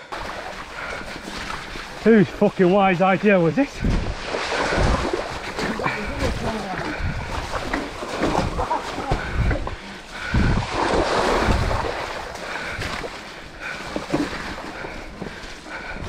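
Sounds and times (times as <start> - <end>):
tyres rolling through mud: 0.0 - 16.0
wind buffeting microphone: 3.6 - 13.2.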